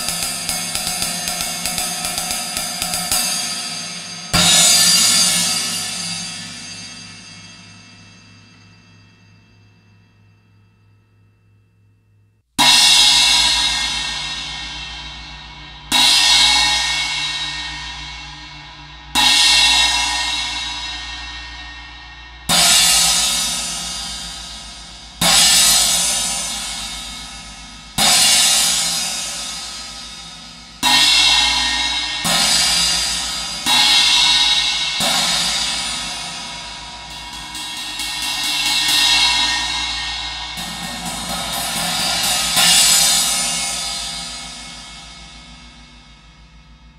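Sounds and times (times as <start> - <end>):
china cymbal crashes: 0.0 - 11.9, 12.6 - 46.9
cymbal roll: 0.0 - 46.9.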